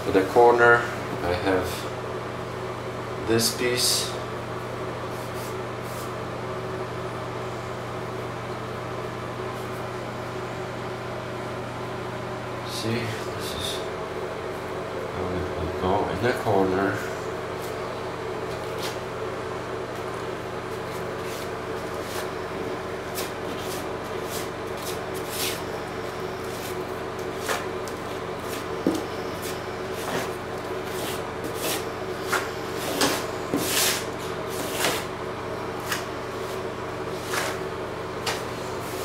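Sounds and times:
steady low hum: 0:00.0 - 0:39.0
tool scraping and swishing: 0:20.7 - 0:22.4, 0:23.1 - 0:25.7, 0:26.4 - 0:27.7, 0:28.4 - 0:35.1, 0:35.8 - 0:37.7.

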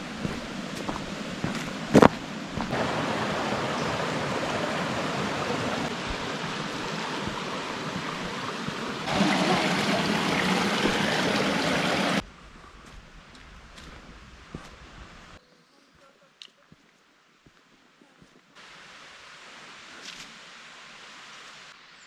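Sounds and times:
stream babbling over stones: 0:00.0 - 0:12.2.

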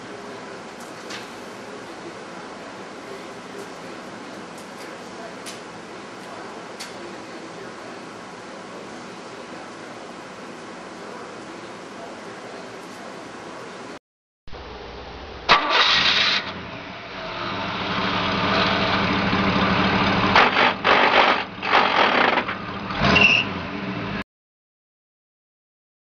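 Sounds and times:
loud bursts of noise: 0:14.6 - 0:22.7.

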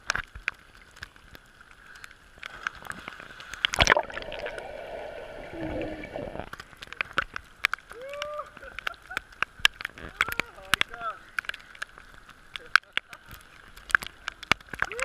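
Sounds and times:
underwater bubbling and gurgling: 0:00.0 - 0:07.9
raindrops on water: 0:00.0 - 0:15.0
loud splash: 0:03.7 - 0:06.4.

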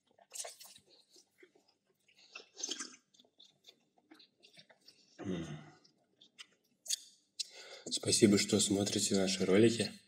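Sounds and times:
lip smacks: 0:00.0 - 0:05.0
chewing with wet clicks: 0:00.0 - 0:05.2, 0:05.8 - 0:07.6.

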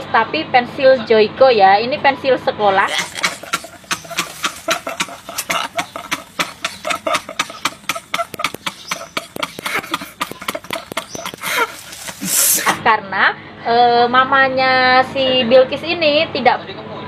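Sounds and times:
men laughing hard: 0:02.8 - 0:12.8
wheezy gasping breaths: 0:02.9 - 0:12.8.

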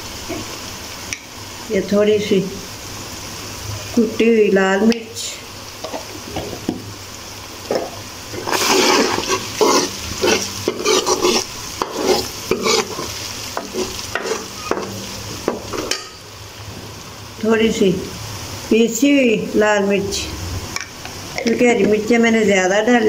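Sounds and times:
masala sizzling: 0:00.0 - 0:23.0
metal ladle scraping a pan: 0:07.7 - 0:16.2.

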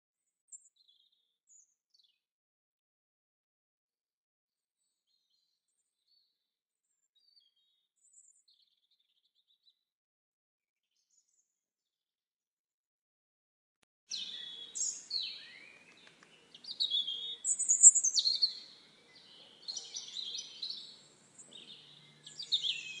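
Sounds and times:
songbirds chirping: 0:14.1 - 0:23.0.

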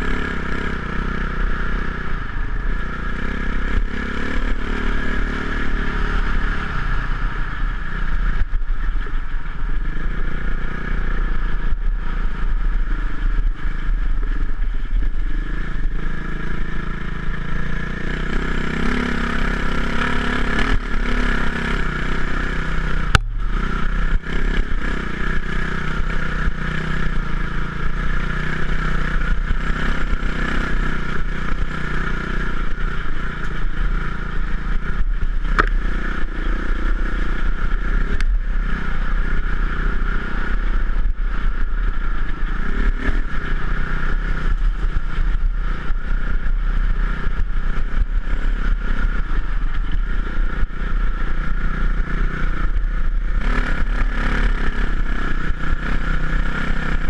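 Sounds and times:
motorcycle engine under throttle: 0:00.0 - 0:57.0
wind rumbling on camera: 0:00.0 - 0:57.0.

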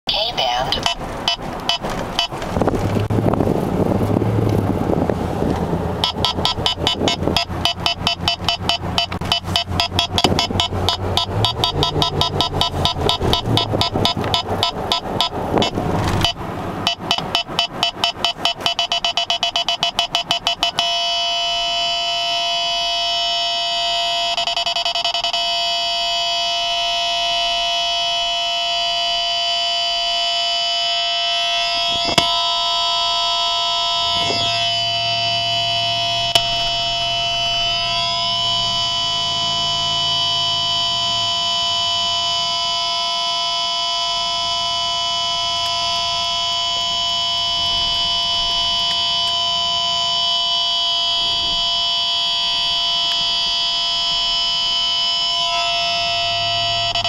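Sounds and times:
radar detector alert beeps: 0:00.1 - 0:02.4, 0:06.0 - 0:28.2, 0:31.6 - 0:42.7, 0:47.0 - 0:57.0.

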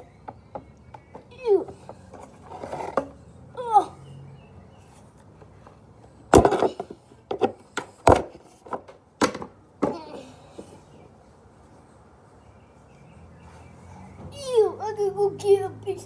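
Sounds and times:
toys knocking and rustling: 0:00.0 - 0:03.3, 0:04.9 - 0:11.2.

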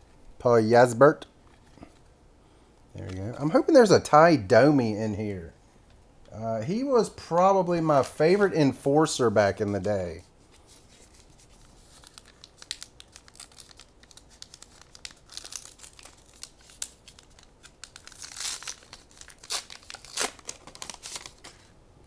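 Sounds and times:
foil wrapper tearing and crinkling: 0:10.8 - 0:21.7.

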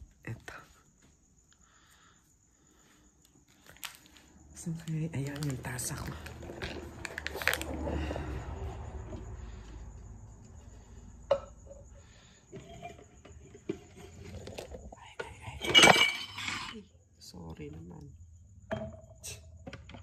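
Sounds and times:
ceramic clatter with ringing clink: 0:15.6 - 0:16.8.

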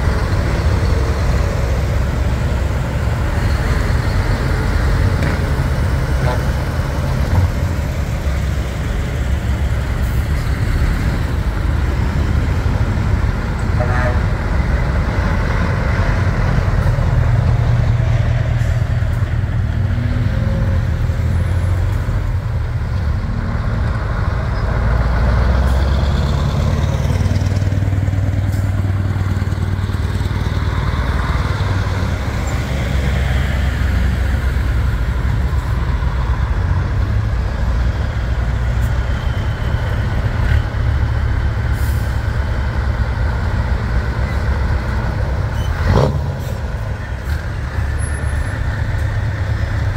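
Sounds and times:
diesel trucks driving past: 0:00.0 - 0:49.9
air brakes hissing: 0:41.7 - 0:42.3.

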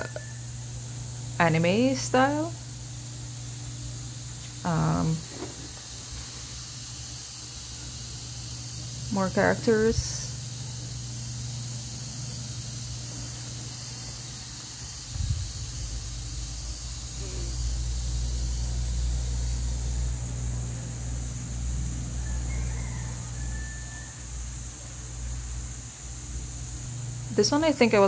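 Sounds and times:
background hiss: 0:00.0 - 0:28.0
low hum: 0:07.6 - 0:23.3.

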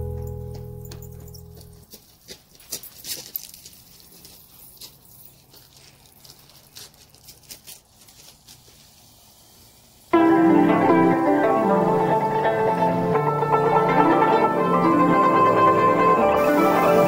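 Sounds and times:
music: 0:00.0 - 0:01.8, 0:10.2 - 0:17.0.

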